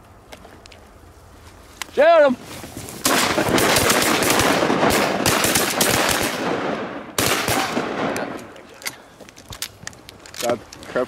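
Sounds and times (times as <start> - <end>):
shotgun shots: 3.0 - 8.5.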